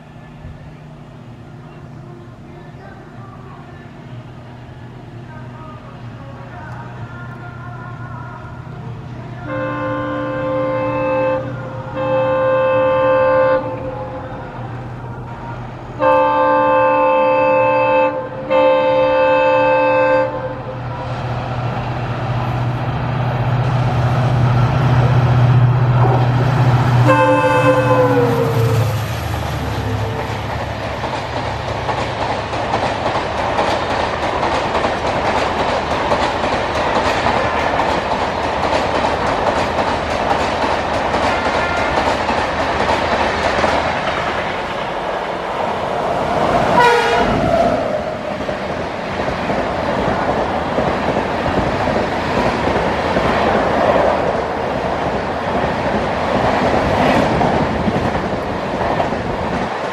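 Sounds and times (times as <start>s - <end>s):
diesel engine drone: 0.0s - 33.4s
locomotive horn blasts: 9.3s - 14.2s, 16.0s - 21.0s, 27.0s - 29.0s, 46.8s - 47.4s
train wheels clickety-clack: 26.0s - 45.4s, 46.2s - 59.9s.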